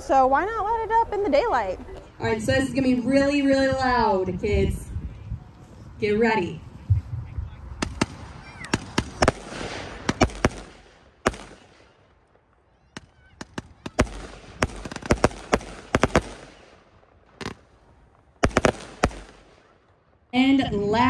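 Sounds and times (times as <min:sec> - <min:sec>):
fireworks cake firing bangs: 0:07.8 - 0:19.8.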